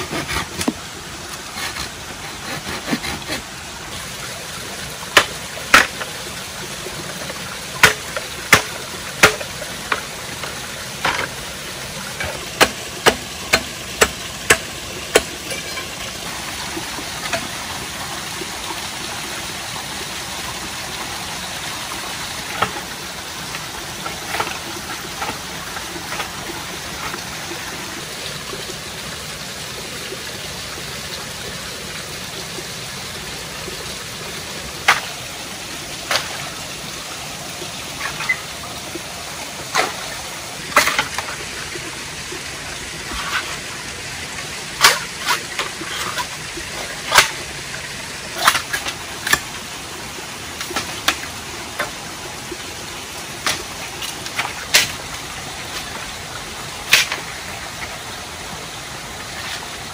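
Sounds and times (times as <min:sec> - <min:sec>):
waterfall rushing: 0:00.0 - 0:59.9
chopping wood: 0:05.2 - 0:06.1, 0:07.8 - 0:11.4, 0:12.2 - 0:15.4, 0:44.8 - 0:45.4, 0:56.9 - 0:57.2.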